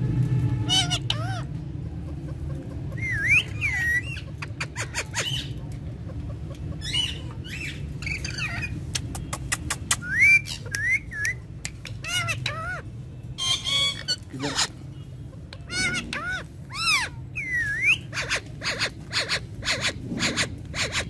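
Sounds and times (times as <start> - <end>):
steady low rumble: 0.0 - 21.0
parakeets chirping and squawking: 0.5 - 11.1, 11.8 - 21.0
beak clicks: 8.9 - 12.0.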